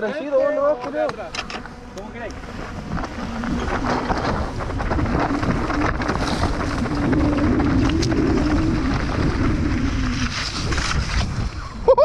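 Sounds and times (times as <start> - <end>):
wavering low hum: 0.3 - 12.0
wind buffeting microphone: 1.6 - 12.0
tyre rumble: 2.3 - 11.7
bike knocking over bumps: 2.4 - 11.4.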